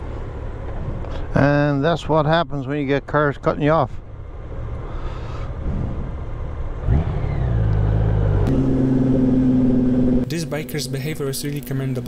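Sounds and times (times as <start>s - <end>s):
road and wind rumble: 0.0s - 12.0s
motorcycle engine revving: 4.2s - 12.0s.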